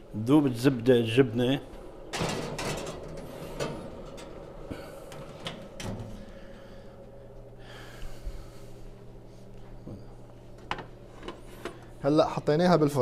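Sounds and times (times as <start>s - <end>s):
low steady hum: 0.0s - 13.0s
oven door clicks and knocks: 2.1s - 4.4s.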